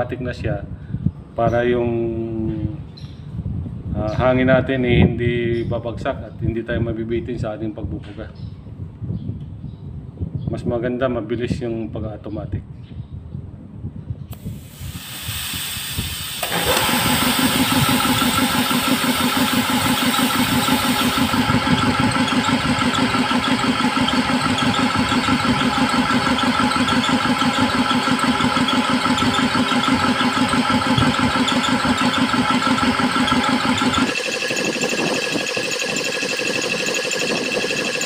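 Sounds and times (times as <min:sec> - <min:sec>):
compressed air hissing: 0:14.3 - 0:21.8
compressor motor running: 0:14.3 - 0:38.0.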